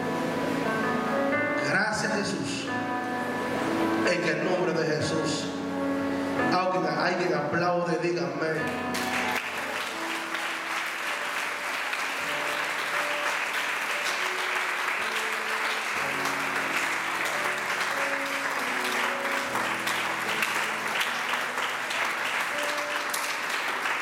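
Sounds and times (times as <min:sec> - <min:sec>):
band playing soft chords: 0:00.0 - 0:24.0
crowd applause: 0:08.7 - 0:24.0.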